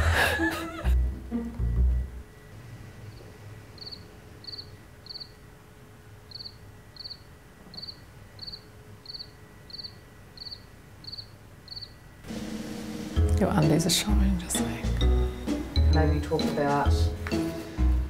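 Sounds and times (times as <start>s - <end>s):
faint steady hum: 0.0s - 12.3s
cricket chirping: 1.6s - 12.3s.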